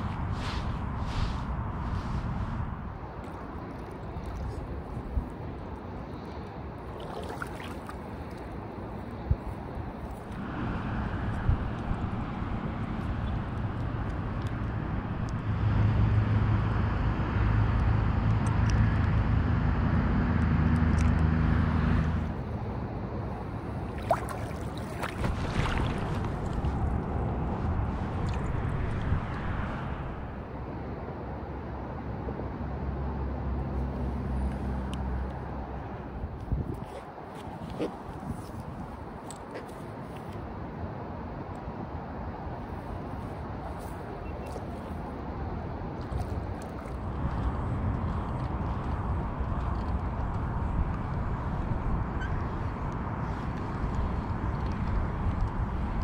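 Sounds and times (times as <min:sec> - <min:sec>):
wind rumbling on microphone: 0:00.0 - 0:56.0
water splashes and drips: 0:03.2 - 0:08.8, 0:23.4 - 0:27.2, 0:27.9 - 0:29.4, 0:46.0 - 0:49.0
wind buffeting microphone: 0:22.2 - 0:30.6, 0:35.4 - 0:40.8, 0:42.3 - 0:56.0.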